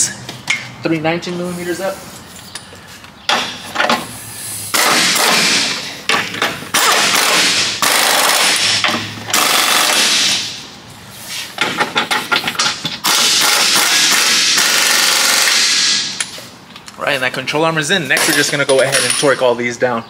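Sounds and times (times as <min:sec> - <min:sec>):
pneumatic impact wrench hammering: 0:03.3 - 0:04.1, 0:04.7 - 0:10.6, 0:11.6 - 0:16.4.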